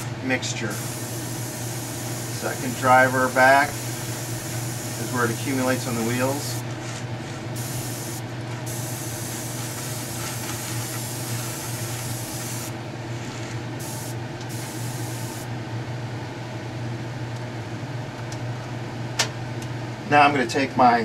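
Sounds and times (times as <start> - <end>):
steady low hum: 0.0 - 20.8
airbrush hissing: 0.7 - 6.6, 7.5 - 12.8, 13.8 - 15.5.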